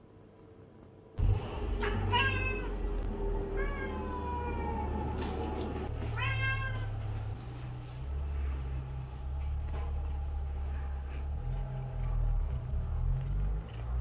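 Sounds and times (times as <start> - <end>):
low rumble: 1.2 - 6.2, 6.8 - 14.0
cat meowing: 1.8 - 2.8, 3.5 - 5.2, 6.1 - 7.0.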